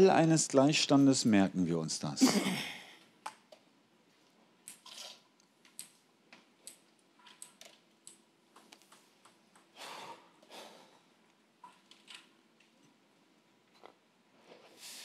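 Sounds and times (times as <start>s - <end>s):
faint ticks and clicks: 5.4s - 9.7s.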